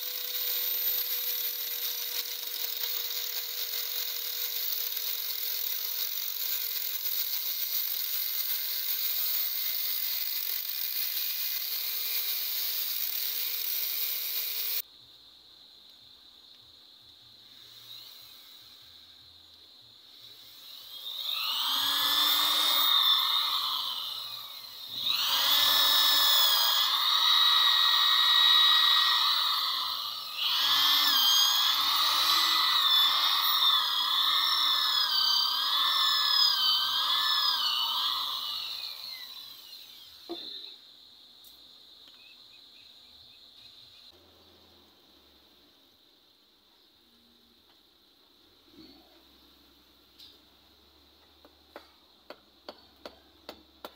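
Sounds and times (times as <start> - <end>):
electric drill boring into wood: 0.0 - 14.8, 17.5 - 19.2, 20.1 - 40.8.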